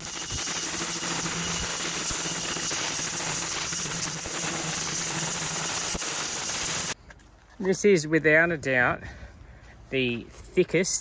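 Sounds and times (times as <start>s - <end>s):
string trimmer running: 0.0s - 7.0s.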